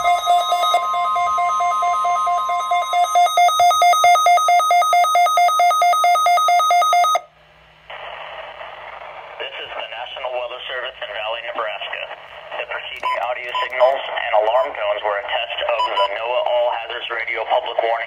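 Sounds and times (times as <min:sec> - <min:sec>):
pulsing electronic beeps: 0:00.0 - 0:04.1
steady warning alarm tone: 0:00.0 - 0:07.3, 0:13.0 - 0:14.9
radio voice speaking: 0:09.4 - 0:18.0.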